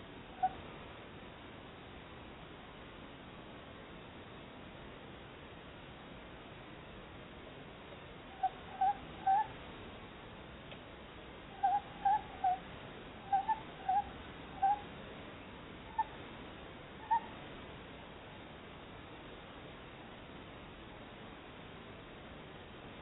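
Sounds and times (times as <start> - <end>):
owls calling: 0.4 - 0.6, 8.3 - 9.5, 11.5 - 14.9, 15.9 - 16.2, 17.0 - 17.4.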